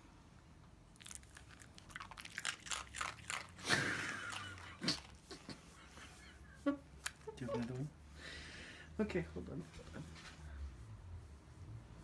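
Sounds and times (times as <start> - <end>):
dog chewing a hard treat: 1.0 - 5.2.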